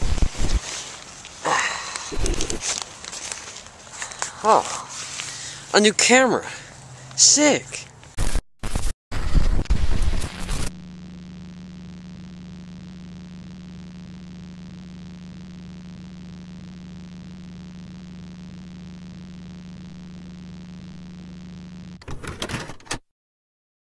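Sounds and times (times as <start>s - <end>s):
crackling static: 0.0s - 6.2s, 6.9s - 22.0s
electrical hum with hiss: 0.0s - 6.2s, 9.7s - 22.0s.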